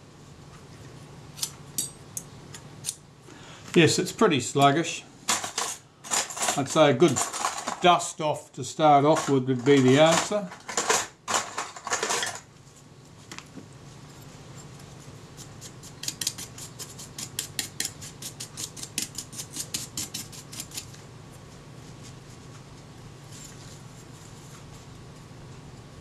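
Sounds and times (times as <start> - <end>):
brush scrubbing metal: 15.4 - 20.9.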